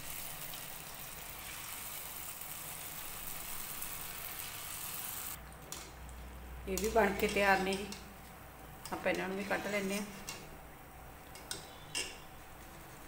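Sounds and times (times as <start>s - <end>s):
snacks sizzling in hot oil: 0.0s - 6.1s.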